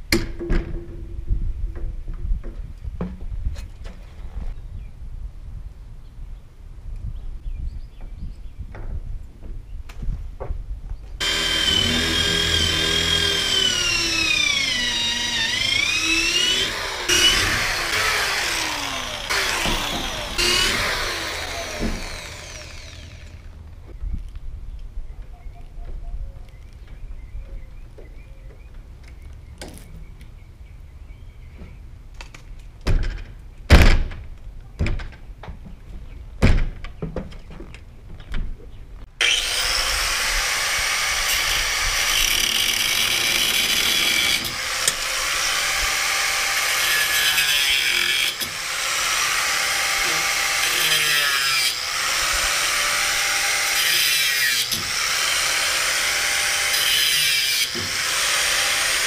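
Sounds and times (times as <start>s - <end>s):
power tool cutting metal: 11.2s - 23.5s, 39.2s - 59.0s.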